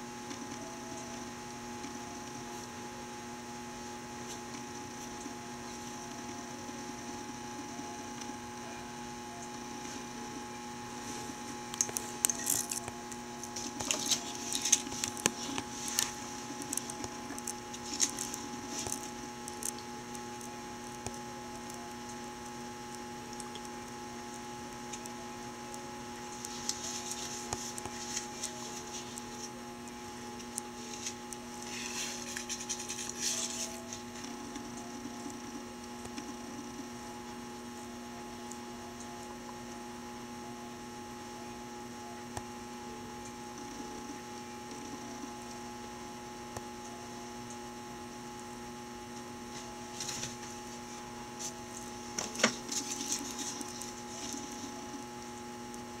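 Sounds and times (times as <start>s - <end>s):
electrical hum with tones: 0.0s - 56.0s
rustling noises: 10.9s - 19.2s, 26.3s - 29.6s, 30.5s - 34.8s, 49.4s - 55.0s.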